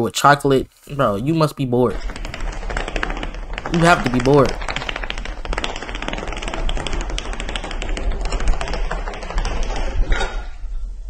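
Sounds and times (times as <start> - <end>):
dominoes toppling with clicks: 1.8 - 10.2.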